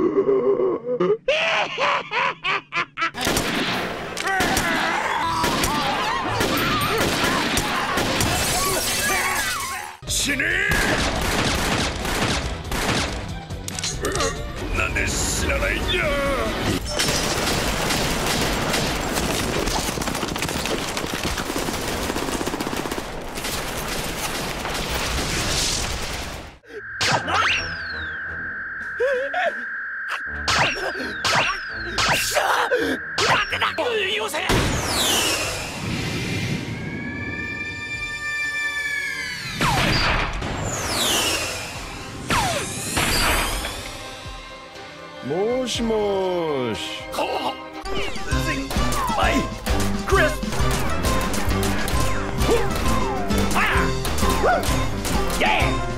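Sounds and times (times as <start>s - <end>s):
rapid gunfire volley: 3.2s - 8.5s, 10.7s - 13.3s, 17.0s - 26.4s
gunshots: 3.2s - 8.7s, 10.7s - 13.3s, 16.9s - 27.1s, 48.7s - 55.8s
voices: 32.2s - 34.5s.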